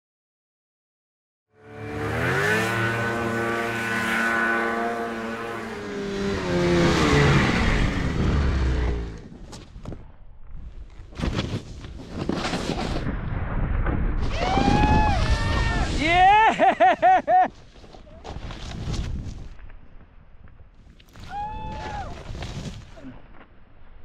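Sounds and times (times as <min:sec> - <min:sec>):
snowmobile engine revving: 0:01.6 - 0:09.3.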